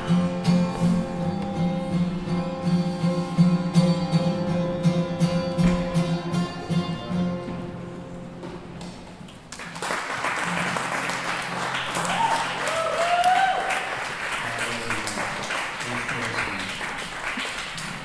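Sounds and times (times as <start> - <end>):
audience applauding: 9.5 - 18.0
person whooping: 11.9 - 13.9.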